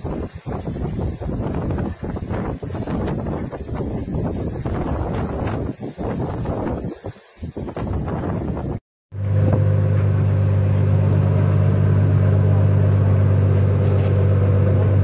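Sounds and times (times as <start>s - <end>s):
waves splashing: 0.0s - 15.0s
wind buffeting microphone: 0.0s - 15.0s
boat engine droning: 9.1s - 15.0s.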